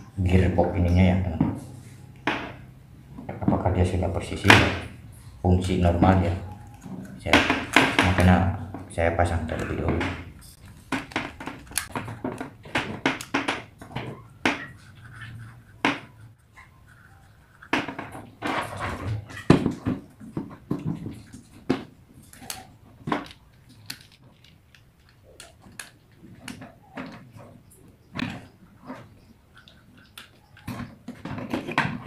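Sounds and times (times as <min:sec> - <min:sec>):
screwdriver being handled: 0:22.2 - 0:26.6
plastic gearbox clicks and scrapes: 0:22.2 - 0:27.5, 0:28.2 - 0:32.0.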